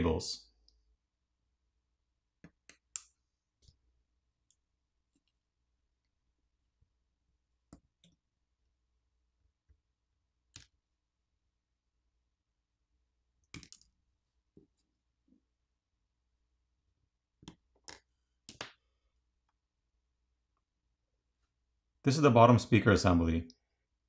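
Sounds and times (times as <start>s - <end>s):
pry tool popping connectors: 13.4s - 13.9s.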